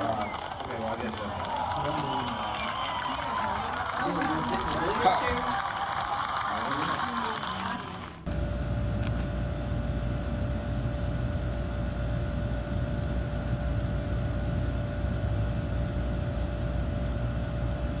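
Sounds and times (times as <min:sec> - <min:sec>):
low outdoor rumble: 0:00.0 - 0:18.0
faint hum: 0:07.5 - 0:18.0.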